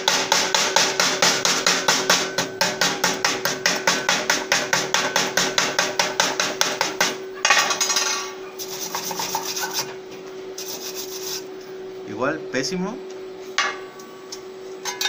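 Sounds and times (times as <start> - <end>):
chipping hammer knocking on metal: 0.0 - 7.2
wire brush scrubbing metal: 8.6 - 10.0, 10.6 - 11.5.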